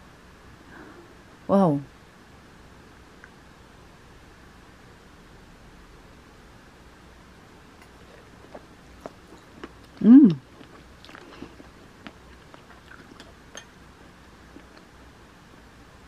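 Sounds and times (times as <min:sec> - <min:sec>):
quiet chewing: 0:07.8 - 0:15.1
person humming mmm: 0:10.0 - 0:10.5.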